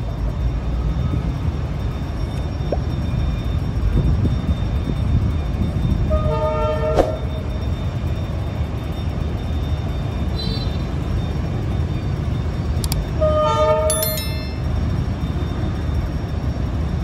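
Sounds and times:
locomotive air horn blasts: 0:06.1 - 0:07.0, 0:13.2 - 0:13.9.

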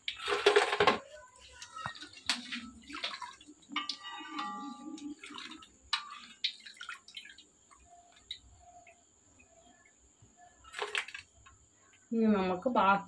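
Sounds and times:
oil dripping: 0:01.4 - 0:12.0.

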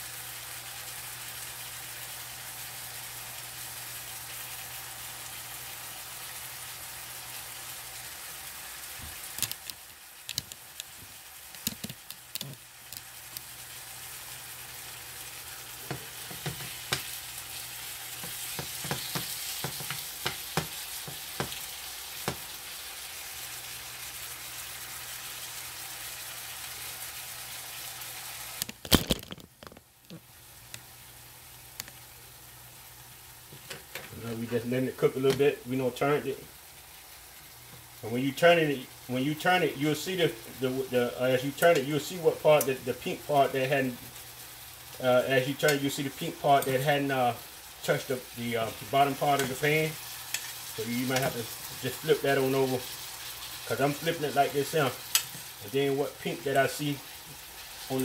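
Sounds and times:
chicken sizzling in a frying pan: 0:00.0 - 0:58.0
pops and crackles: 0:09.1 - 0:13.5, 0:28.6 - 0:30.9.

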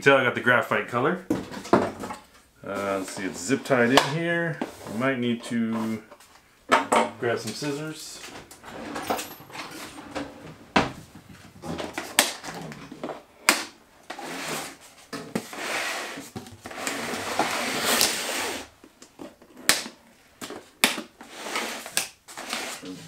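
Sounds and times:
cardboard scraping and rustling: 0:07.4 - 0:13.3, 0:14.1 - 0:19.7, 0:20.6 - 0:23.0.

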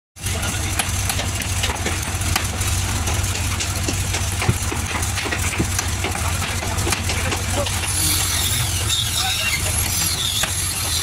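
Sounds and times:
low engine hum: 0:00.2 - 0:11.0
knocks and clatter on frame: 0:00.8 - 0:08.0
hammer knocking on frame: 0:03.1 - 0:07.5.

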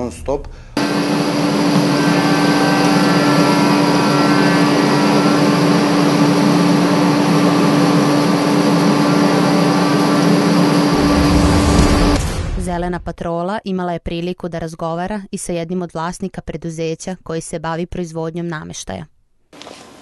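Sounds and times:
woodworking machinery humming: 0:00.5 - 0:12.2.

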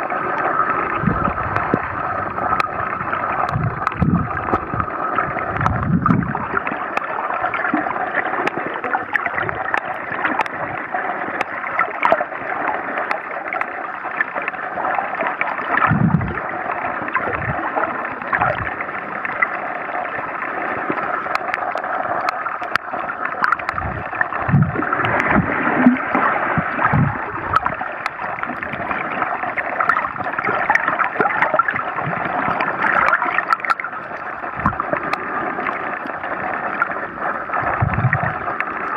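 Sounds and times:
muffled underwater rush: 0:00.0 - 0:38.9
faint clicks: 0:09.7 - 0:10.6
low dull thumps: 0:23.9 - 0:26.0.

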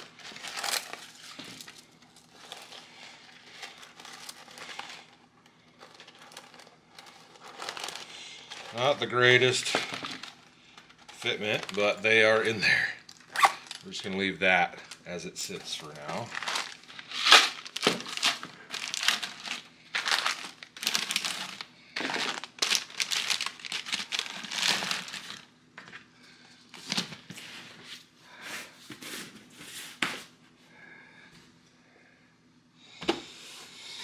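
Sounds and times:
plastic bags crinkling: 0:00.0 - 0:25.5.

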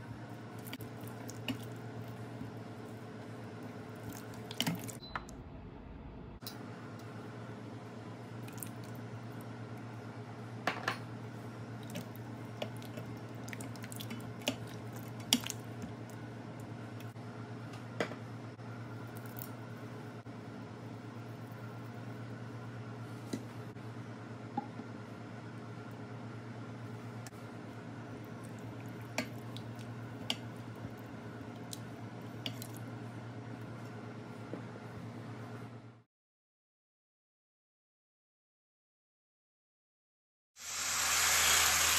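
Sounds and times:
steady low hum: 0:00.0 - 0:36.0
low hum: 0:05.0 - 0:08.2.

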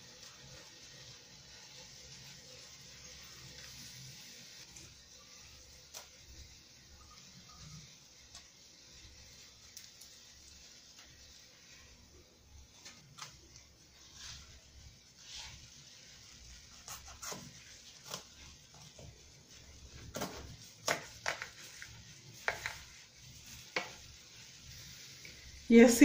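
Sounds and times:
knife scraping on cutting board: 0:16.8 - 0:18.3.

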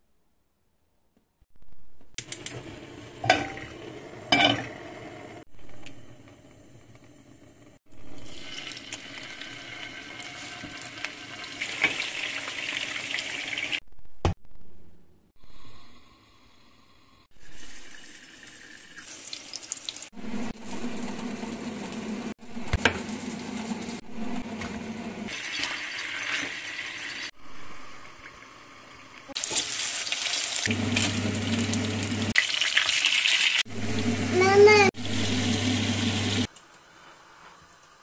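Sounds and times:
kitchen sounds: 0:01.8 - 0:07.1, 0:07.8 - 0:38.0
chicken frying in oil: 0:29.3 - 0:36.5.

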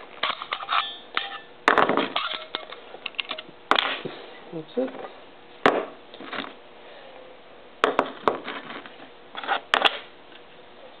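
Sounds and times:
metal parts scraping: 0:00.1 - 0:03.5, 0:08.4 - 0:10.0.

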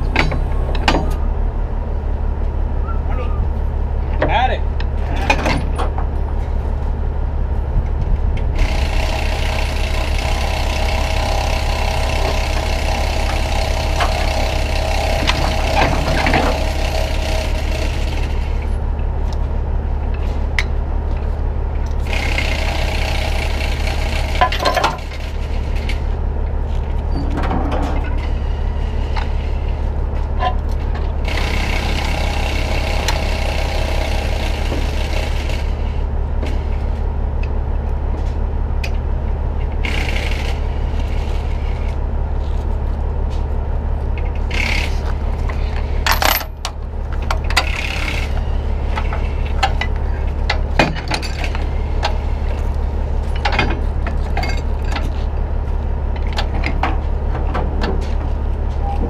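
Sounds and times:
diesel engine idling: 0:00.0 - 0:59.0
chain and hooks clinking: 0:46.0 - 0:46.6.

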